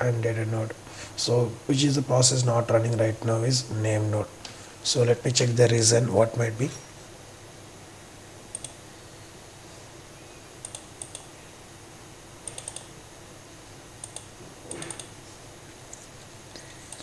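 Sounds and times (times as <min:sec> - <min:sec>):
faint steady hum: 0:00.0 - 0:17.0
computer mouse clicks: 0:08.5 - 0:08.8, 0:10.6 - 0:11.3, 0:12.4 - 0:12.9, 0:14.0 - 0:15.2.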